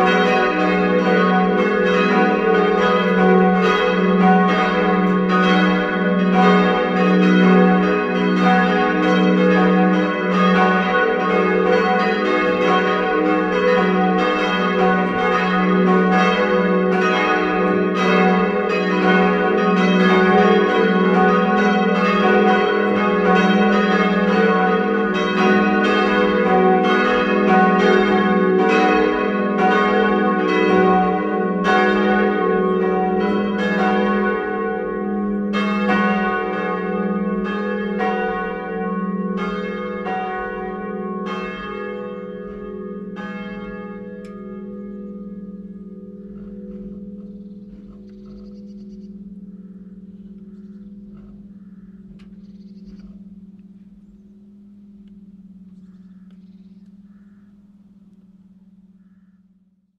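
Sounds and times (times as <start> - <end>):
church bells ringing: 0.0 - 59.9.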